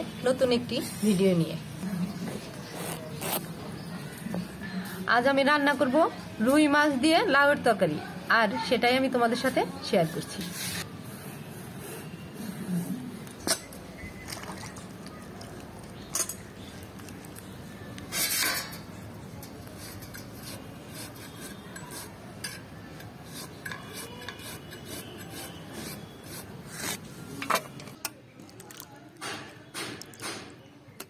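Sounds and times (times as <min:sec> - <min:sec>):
blade rasping on gourd: 0:19.8 - 0:22.2, 0:23.2 - 0:27.0.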